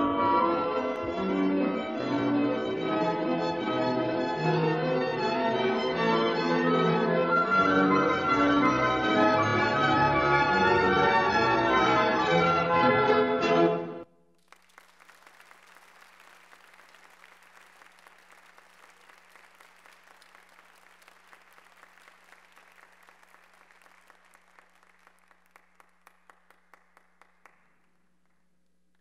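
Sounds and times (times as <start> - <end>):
audience applauding: 14.3 - 28.5.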